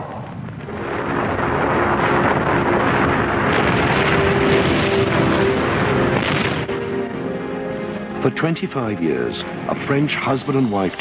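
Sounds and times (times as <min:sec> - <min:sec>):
volcano erupting roar: 0:00.0 - 0:07.2.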